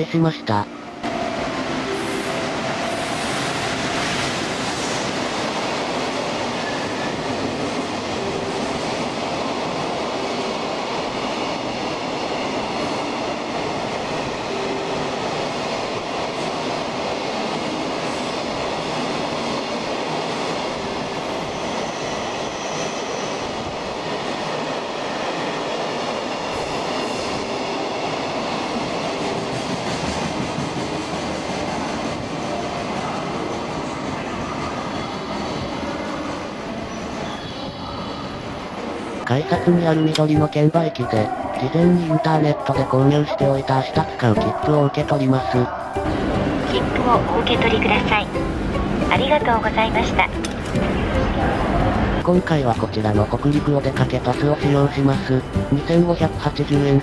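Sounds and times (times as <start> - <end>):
freight train wheels rumbling on rails: 1.0 - 57.0.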